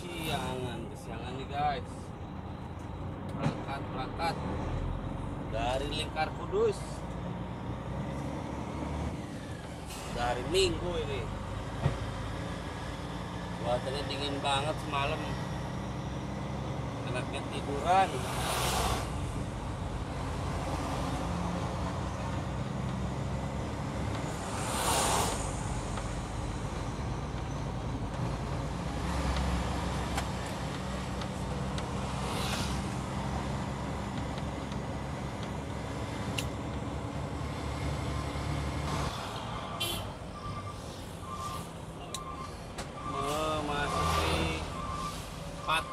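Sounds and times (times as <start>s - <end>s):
road noise: 0.0s - 45.9s
truck engine: 0.0s - 45.9s.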